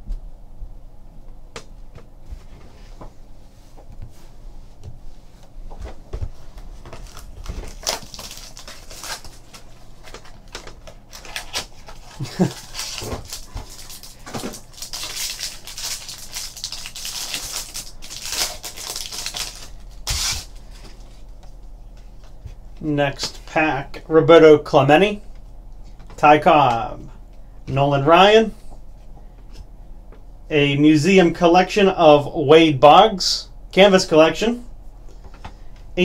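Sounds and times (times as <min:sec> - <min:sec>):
foil wrapper crinkling: 0:06.9 - 0:21.1.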